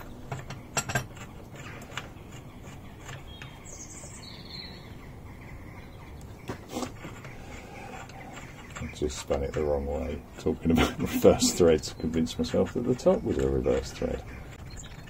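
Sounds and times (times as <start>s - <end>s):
bird chirping: 0.0s - 15.0s.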